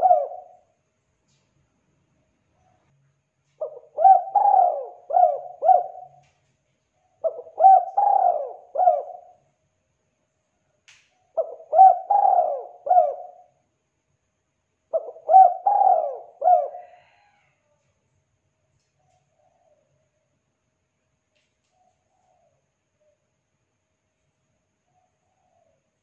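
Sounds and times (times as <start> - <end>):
dove cooing: 0.0 - 0.7, 3.6 - 6.4, 7.1 - 9.4, 11.4 - 13.5, 14.9 - 17.4.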